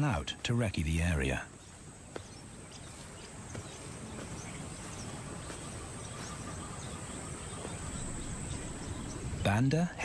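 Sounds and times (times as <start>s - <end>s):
faint bird chirps: 1.2s - 10.0s.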